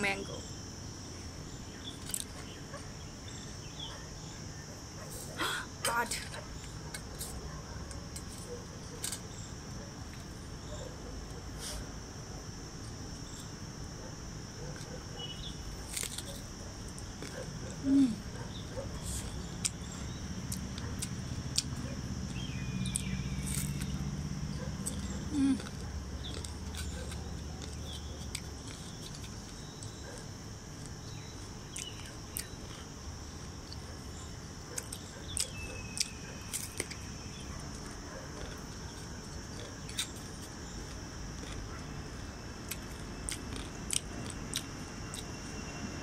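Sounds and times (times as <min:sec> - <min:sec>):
high insect drone: 0:00.0 - 0:46.0
crunchy biting and chewing: 0:00.6 - 0:05.4, 0:06.2 - 0:45.8.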